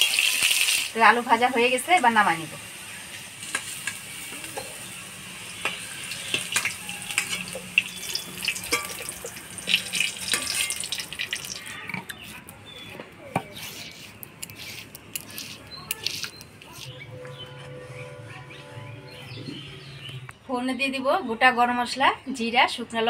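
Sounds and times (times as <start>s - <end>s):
hot oil sizzling in a wok: 0.0s - 11.8s
steel ladle scraping a wok: 3.4s - 12.4s, 13.5s - 18.2s.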